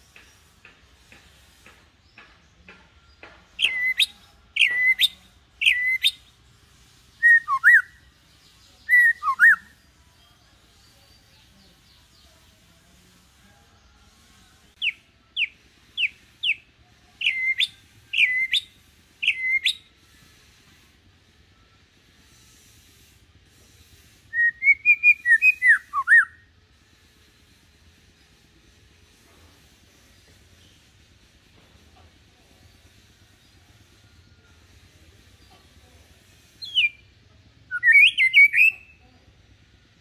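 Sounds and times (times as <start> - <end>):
bird singing whistled phrases: 3.6 - 6.3, 7.2 - 8.0, 8.9 - 9.8, 17.2 - 19.9, 24.3 - 26.4, 36.6 - 37.1, 37.7 - 39.0.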